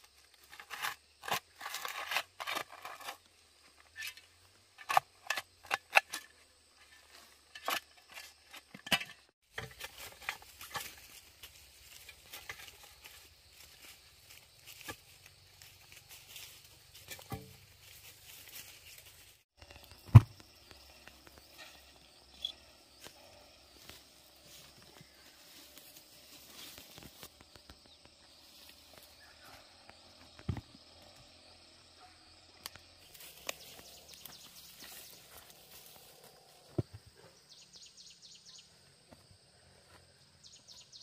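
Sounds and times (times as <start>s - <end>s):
pulsing insect chorus: 9.9s - 40.9s
dull thumps: 19.9s - 21.4s.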